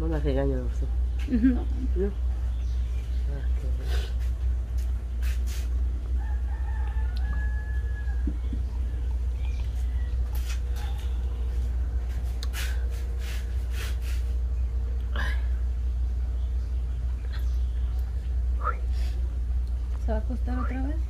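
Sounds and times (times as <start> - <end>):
steady low rumble: 0.0 - 21.0
faint rooster crowing: 6.0 - 12.4.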